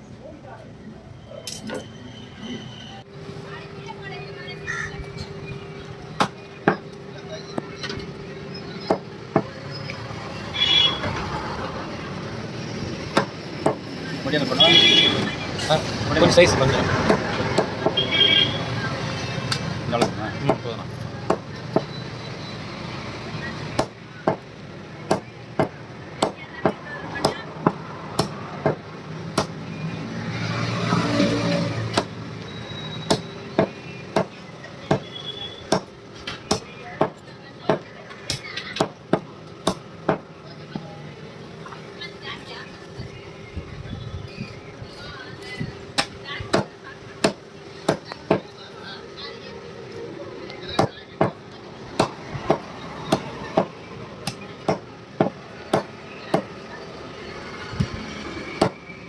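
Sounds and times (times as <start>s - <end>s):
cleaver chopping on wooden block: 31.9s - 32.1s, 33.1s - 35.1s, 35.7s - 35.9s, 52.0s - 56.5s.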